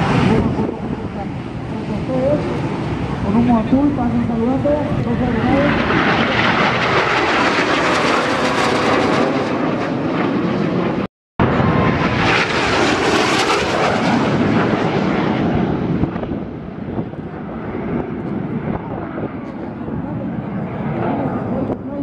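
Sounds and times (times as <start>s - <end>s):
jet flying past overhead: 0.0s - 22.0s.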